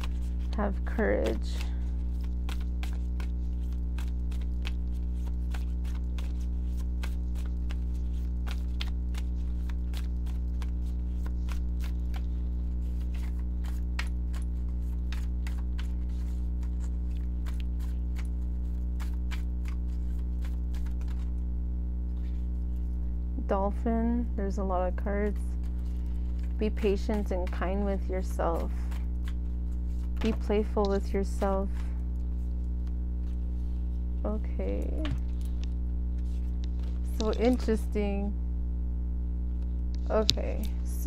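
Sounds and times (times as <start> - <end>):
cards clicking and tapping: 0.0 - 12.3, 12.9 - 21.3
low electrical hum: 0.0 - 41.0.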